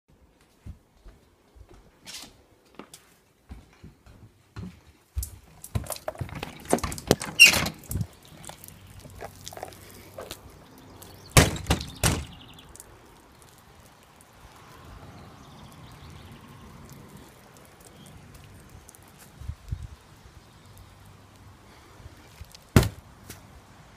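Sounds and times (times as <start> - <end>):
outdoor background: 0.1 - 23.9
glass storm door banging: 5.7 - 8.1, 11.3 - 12.4
door opening knocks: 11.4 - 12.3.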